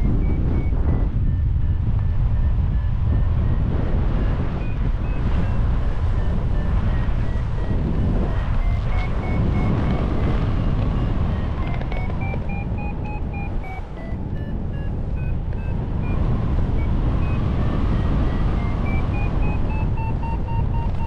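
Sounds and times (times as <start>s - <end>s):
wind rumble on microphone: 0.0s - 21.0s
simple melody of short notes: 8.0s - 21.0s.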